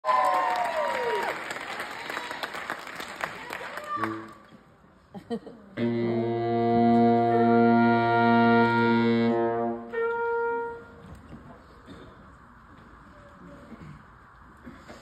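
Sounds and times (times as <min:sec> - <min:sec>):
brass trio playing chords: 0:05.8 - 0:11.0.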